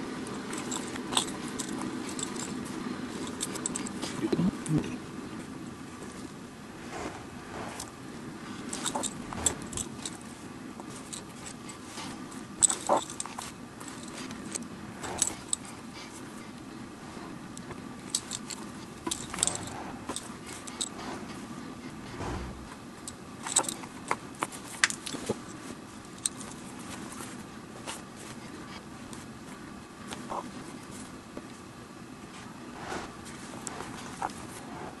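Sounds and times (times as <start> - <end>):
steady low hum: 0.0 - 35.0
needle and thread pulled through leather: 6.8 - 16.2, 17.0 - 22.8, 32.3 - 35.0
leather handled rustling: 8.5 - 16.2, 17.6 - 31.2, 32.3 - 35.0.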